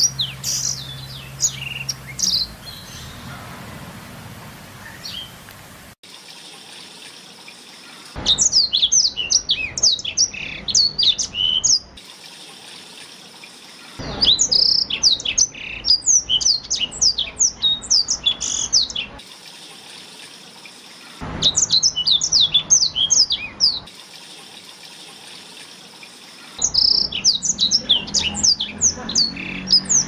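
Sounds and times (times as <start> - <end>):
canary singing chirps and whistles: 0.0 - 3.2, 8.2 - 11.9, 14.0 - 19.2, 21.4 - 23.9, 26.6 - 30.0.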